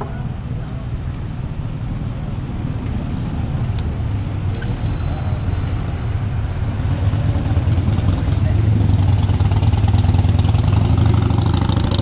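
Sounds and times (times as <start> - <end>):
thin high ringing tone: 4.5 - 9.2.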